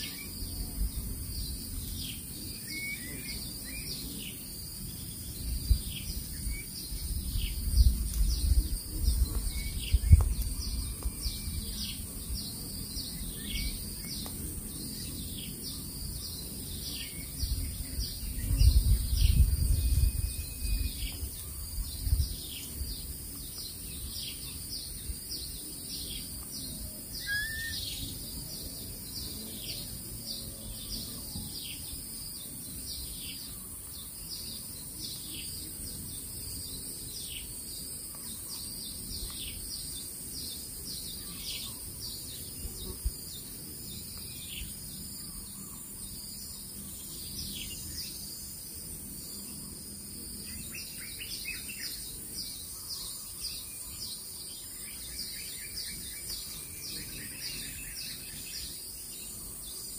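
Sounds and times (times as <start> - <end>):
insect hum: 0.0 - 59.9
bird chirps sliding downward: 27.2 - 28.1.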